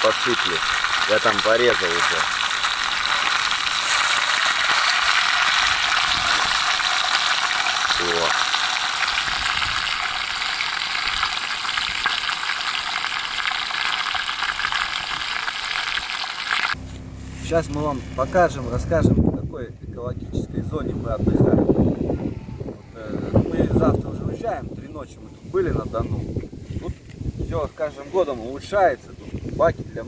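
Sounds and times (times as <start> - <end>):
fish sizzling over fire: 0.0 - 17.2.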